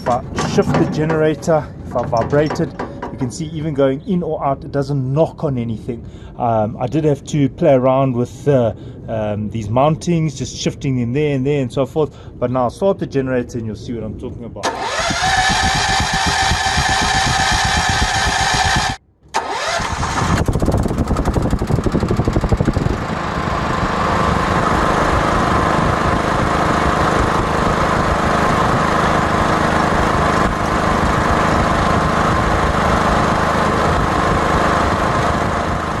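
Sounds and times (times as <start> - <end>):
generator engine running: 0.0 - 3.6, 14.6 - 36.0.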